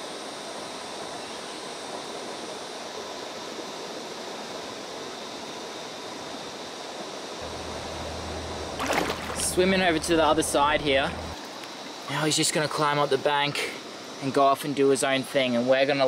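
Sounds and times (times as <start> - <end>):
low rumble: 7.4 - 11.4
creek water running over rocks: 7.4 - 15.0.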